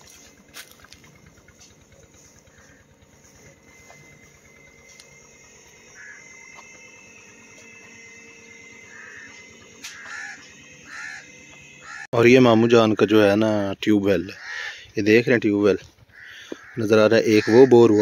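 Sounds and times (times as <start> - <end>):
short bird calls: 14.3 - 15.0, 16.1 - 16.8.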